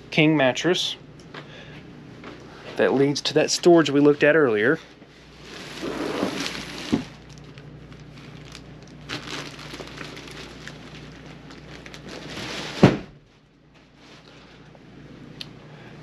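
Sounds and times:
bedspread rustling: 5.4s - 7.0s.

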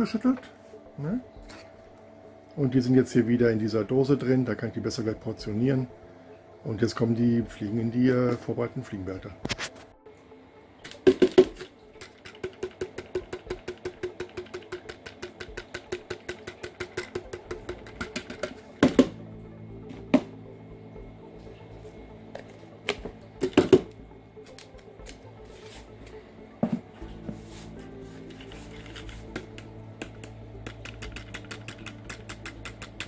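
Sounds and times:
plastic containers knocking: 10.9s - 19.2s, 22.9s - 24.0s
tapping on plastic bottle: 10.9s - 19.2s.

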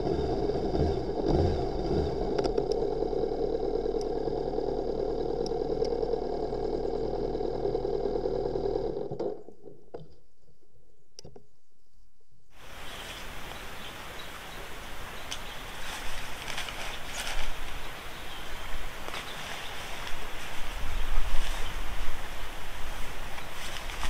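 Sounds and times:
motorcycle engine running: 0.0s - 9.6s, 15.2s - 24.0s.

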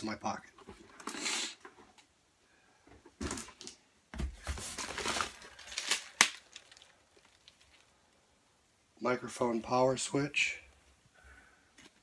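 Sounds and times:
plastic packaging crinkling: 4.4s - 8.0s.

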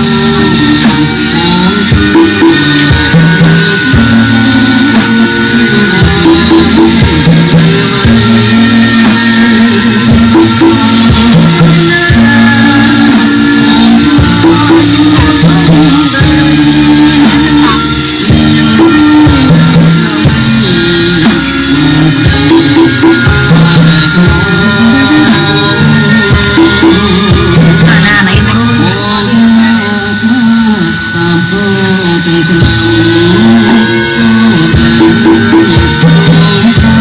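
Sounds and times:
loud music with drums: 0.0s - 37.0s.

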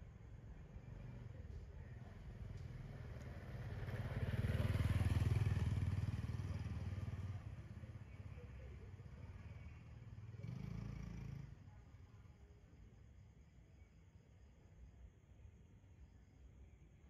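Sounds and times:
motor scooter passing by: 2.5s - 8.0s, 9.4s - 11.6s.

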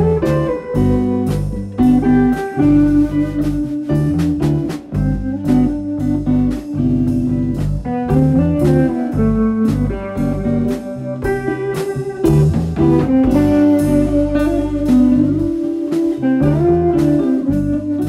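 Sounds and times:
bass notes: 0.0s - 18.0s
drums keeping a steady beat: 0.0s - 18.0s
plucked guitar: 0.0s - 18.0s.

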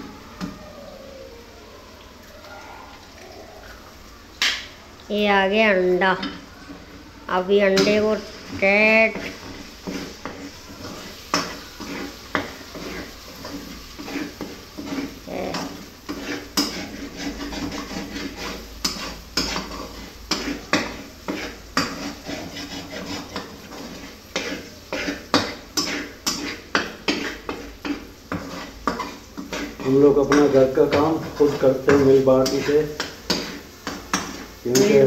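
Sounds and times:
faint sizzle: 0.0s - 35.0s
fork scraping and clicking on wok: 9.2s - 35.0s.

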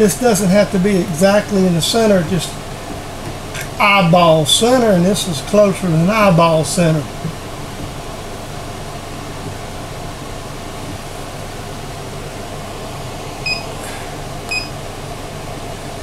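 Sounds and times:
air conditioner humming: 0.0s - 16.0s
short electronic beeps: 13.4s - 13.7s, 14.5s - 14.8s.

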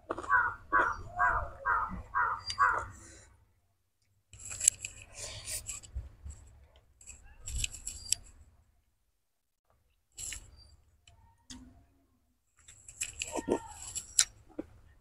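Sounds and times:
chewing: 0.0s - 1.9s.

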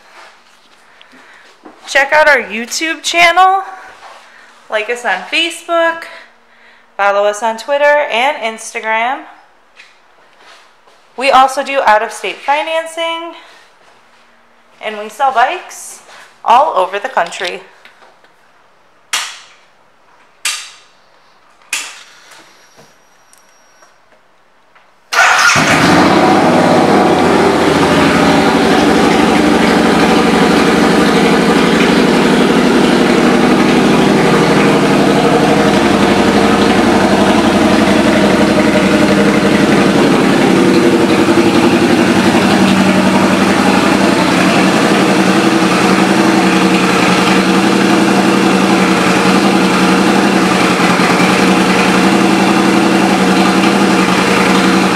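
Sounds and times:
motorcycle engine starting and idling: 25.1s - 54.9s.

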